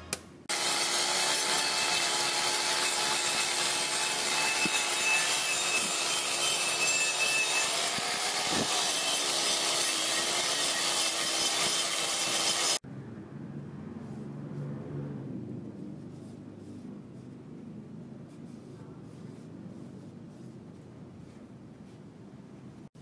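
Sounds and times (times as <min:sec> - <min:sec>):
angle grinder motor whine: 0:00.5 - 0:12.8
wire brush scouring steel: 0:00.5 - 0:12.8.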